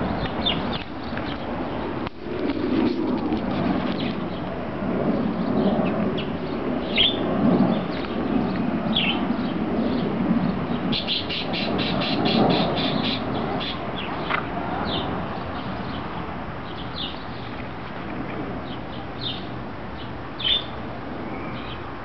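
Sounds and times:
small birds chirping: 0.0 - 2.0, 5.1 - 21.9.

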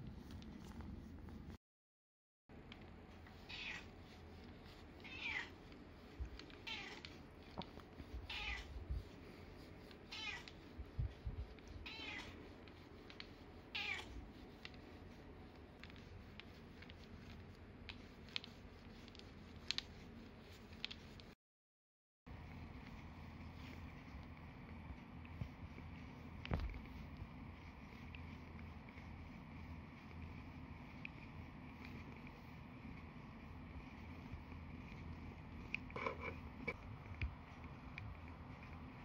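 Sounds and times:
massage roller bumps and clicks: 2.6 - 21.4, 22.5 - 39.0
cat meowing: 3.5 - 3.9, 5.0 - 5.5, 6.6 - 7.0, 8.3 - 8.7, 10.1 - 10.5, 11.8 - 12.4.

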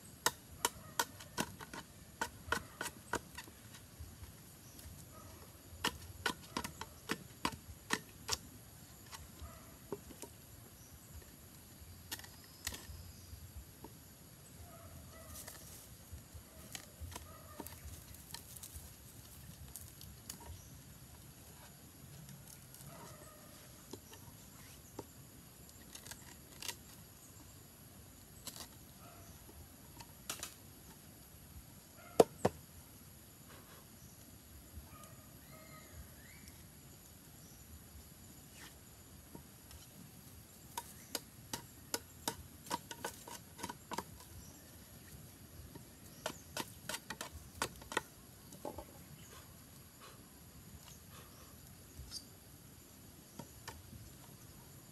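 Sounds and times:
knife chopping bamboo: 0.2 - 3.8, 5.8 - 8.4, 40.7 - 44.3.

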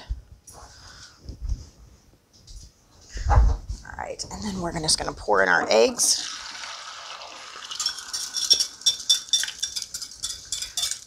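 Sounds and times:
eggs hissing in hot butter: 6.3 - 8.8
whisk clinking against glass bowl: 7.7 - 11.0.

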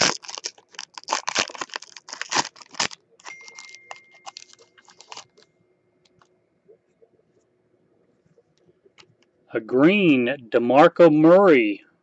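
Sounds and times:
foil wrapper tearing and crinkling: 0.0 - 5.4.

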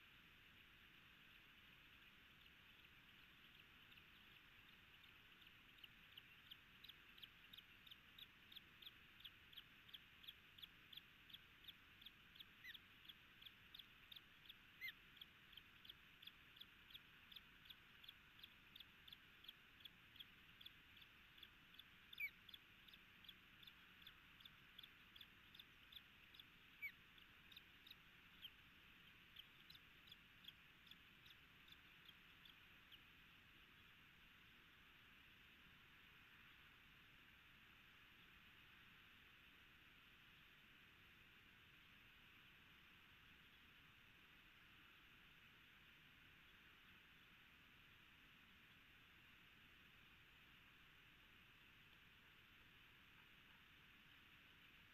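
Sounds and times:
ospreys chirping: 1.2 - 34.3.

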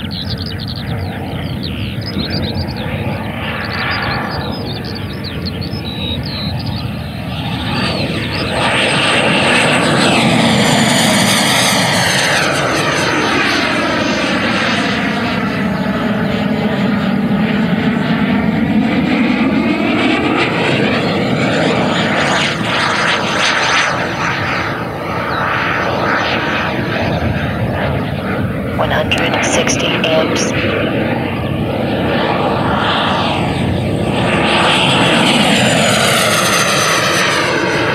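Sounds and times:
rc jet fan whine passing overhead: 0.0 - 28.8.

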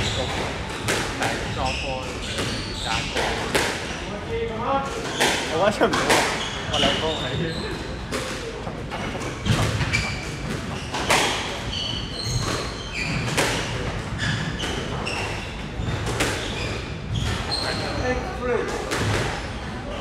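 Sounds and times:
squash ball hits: 0.0 - 1.5, 2.1 - 4.0, 4.9 - 6.9, 8.1 - 17.8, 18.7 - 19.4
shoes squeaking on wooden floor: 0.0 - 4.1, 5.0 - 18.3.

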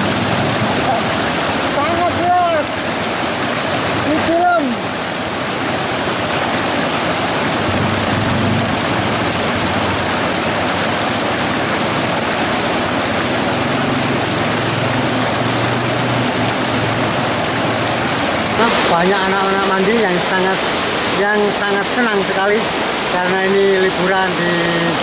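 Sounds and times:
river rapids roaring: 0.0 - 25.0.

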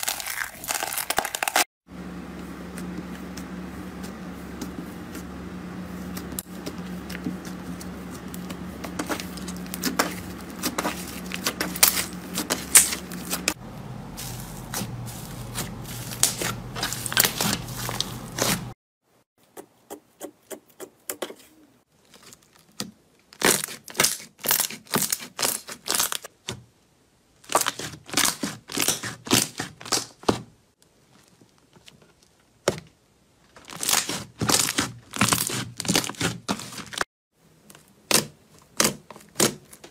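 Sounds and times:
steady low hum: 1.9 - 18.8.

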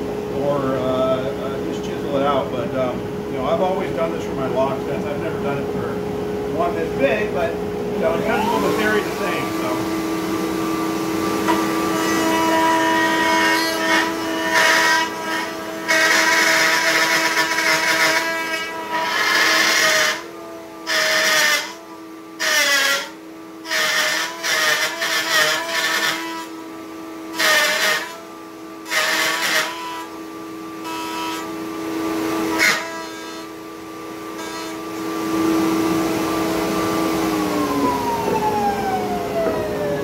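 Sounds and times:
router bit cutting wood: 8.0 - 26.6, 27.3 - 30.2, 30.8 - 33.6, 34.3 - 40.0
router motor whining: 8.0 - 26.7, 27.3 - 30.2, 30.8 - 40.0.

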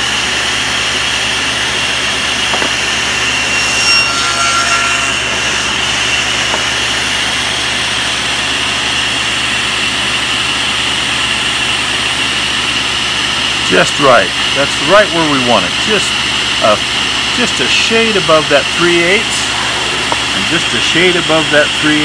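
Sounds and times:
table saw whining: 0.0 - 22.0
saw blade cutting wood: 2.2 - 8.5, 17.4 - 22.0.

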